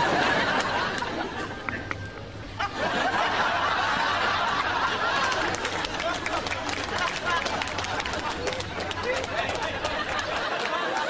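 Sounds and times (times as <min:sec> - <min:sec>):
people chattering: 0:00.0 - 0:11.0
people laughing and giggling: 0:00.0 - 0:11.0.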